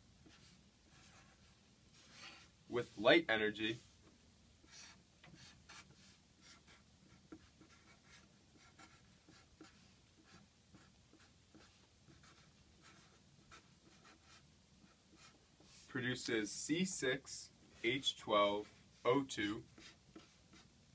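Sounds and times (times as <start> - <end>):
marker pen scratching: 4.6 - 15.8, 19.5 - 20.7.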